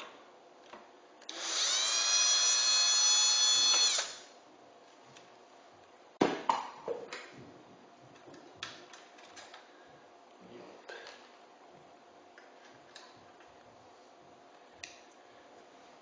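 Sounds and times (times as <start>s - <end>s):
electric screwdriver whine: 1.3s - 4.3s.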